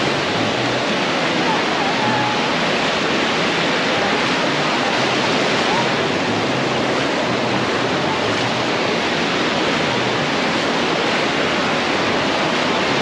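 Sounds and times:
waves washing in shallows: 0.0s - 13.0s.

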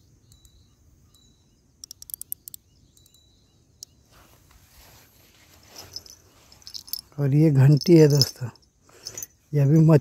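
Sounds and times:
fishing reel clicking: 1.8s - 2.6s.

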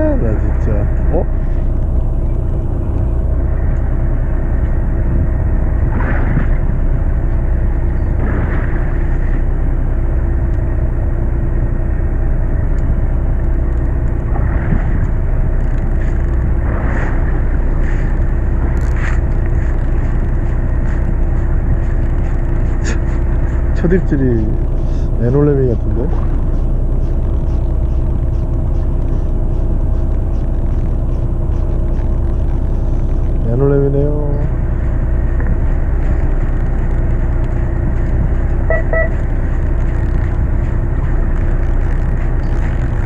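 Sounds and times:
boat engine humming: 0.0s - 43.0s
waves slapping against hull: 5.7s - 9.7s, 14.0s - 24.0s, 25.8s - 33.4s.

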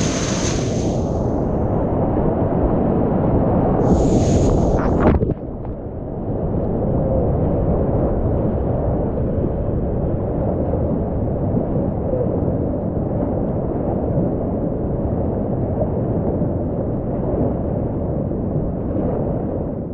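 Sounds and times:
rapids rushing: 0.0s - 1.4s.

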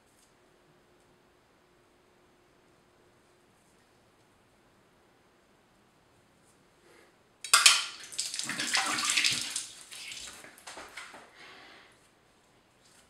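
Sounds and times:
tap water splashing into sink: 7.5s - 11.1s.

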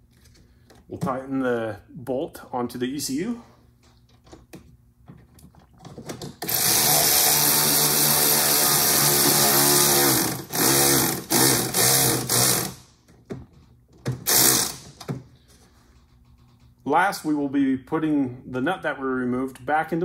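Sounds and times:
cordless power driver spinning: 6.4s - 12.8s, 14.2s - 15.0s.

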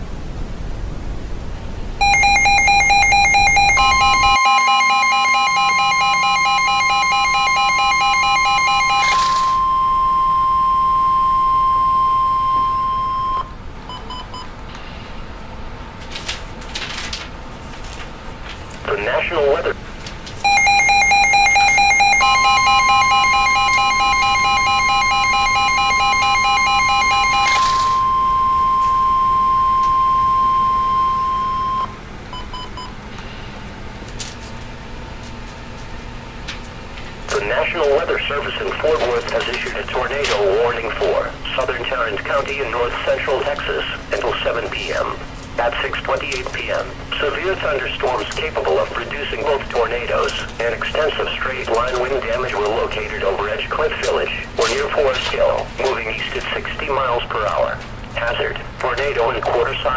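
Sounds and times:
steady high beep: 2.0s - 13.5s, 20.4s - 32.0s
pulsing buzzing alarm tone: 2.0s - 13.6s, 20.4s - 32.0s
short beeps: 2.0s - 14.5s, 20.4s - 32.9s.

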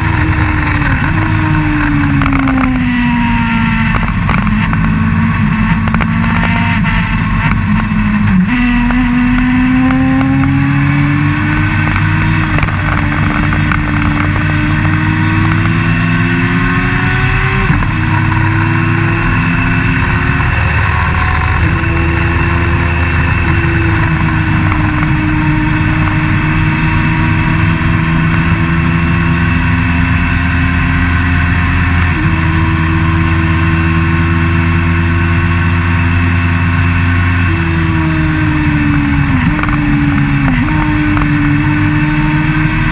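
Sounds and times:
race car engine at speed: 0.0s - 42.9s.

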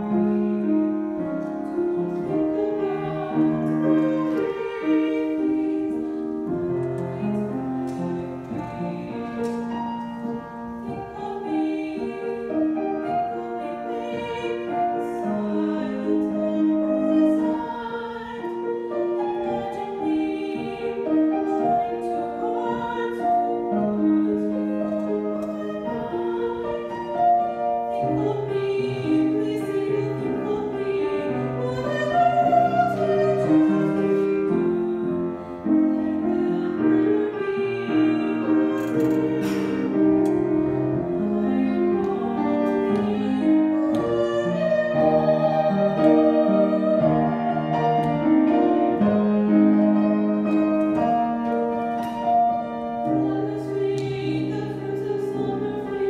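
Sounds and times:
piano accompaniment: 0.0s - 56.0s
woman singing classical: 0.0s - 56.0s.

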